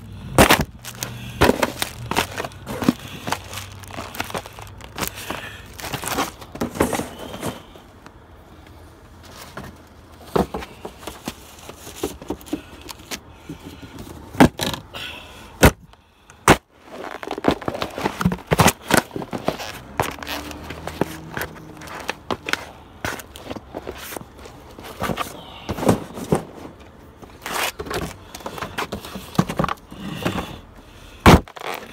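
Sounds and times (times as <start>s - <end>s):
cardboard scraping on pavement: 0.3s - 7.7s, 16.5s - 30.4s
cardboard boxes being stomped flat: 0.4s - 4.4s, 16.4s - 16.6s, 31.2s - 31.6s.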